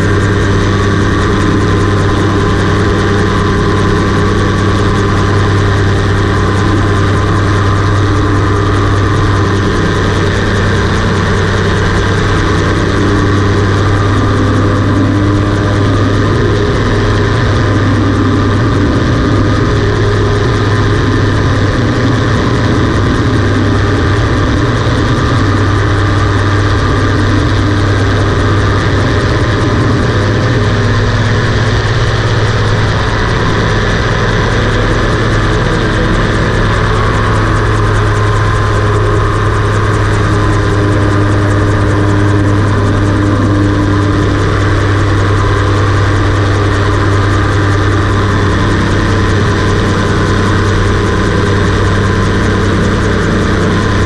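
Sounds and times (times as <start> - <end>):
aircraft engine and propeller: 0.0 - 54.0.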